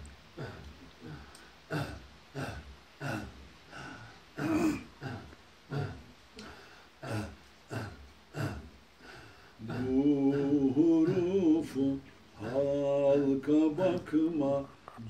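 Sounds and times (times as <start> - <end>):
man's breathy grunts: 0.4 - 9.4
man singing a hymn: 9.6 - 15.0.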